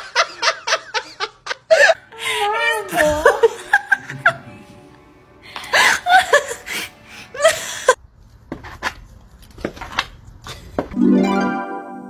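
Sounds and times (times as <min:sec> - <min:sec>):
woman laughing: 0:00.0 - 0:04.6, 0:05.7 - 0:08.0.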